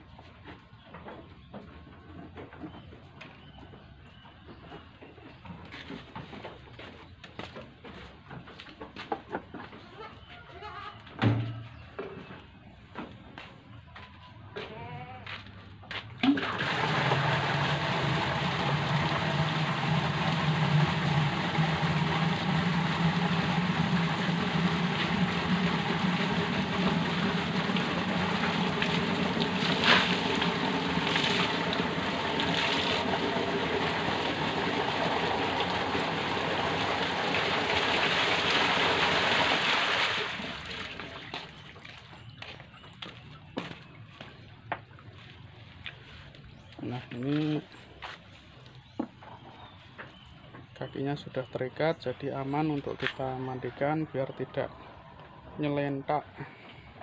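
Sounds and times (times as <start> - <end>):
water running into a container: 16.2 - 42.0.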